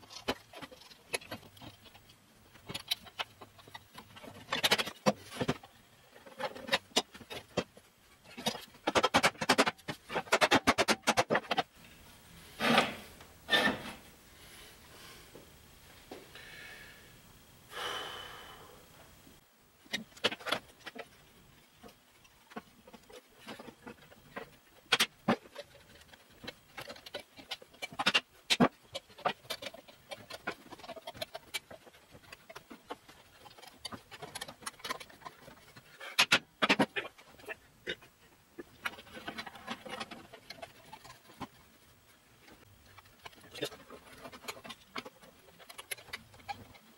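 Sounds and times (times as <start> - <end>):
heavy breath: 16.3 - 19.0.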